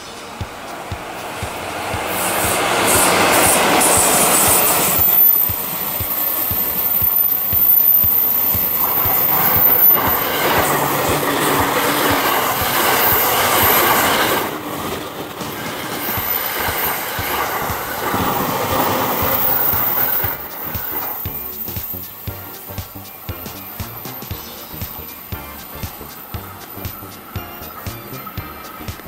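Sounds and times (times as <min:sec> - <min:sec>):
train wheels clattering over rail joints: 0:00.0 - 0:22.4
freight train rolling past: 0:00.0 - 0:29.0.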